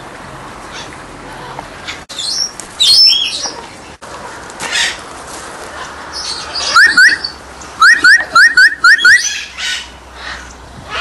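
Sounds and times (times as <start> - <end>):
parrot whistled calls: 2.2 - 3.4, 6.6 - 9.8.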